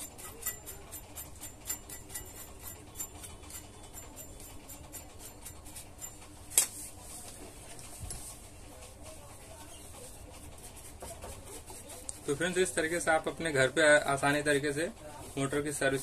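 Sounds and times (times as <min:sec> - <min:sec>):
brush scrubbing metal: 0:00.0 - 0:06.2.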